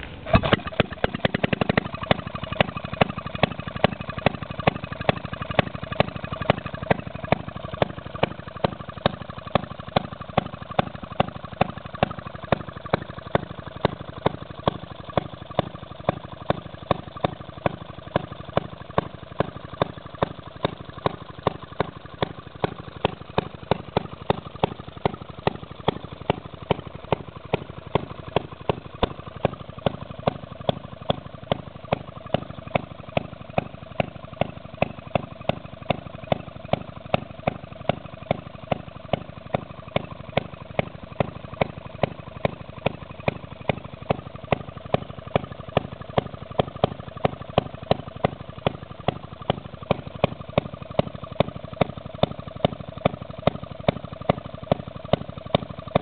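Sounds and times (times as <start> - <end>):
engine pops: 0.0 - 56.0
gas engine running: 0.0 - 56.0.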